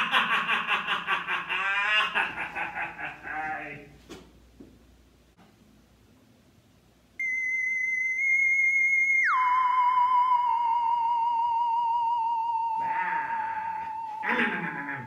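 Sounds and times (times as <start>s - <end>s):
electronic tone sliding down: 7.2s - 14.6s.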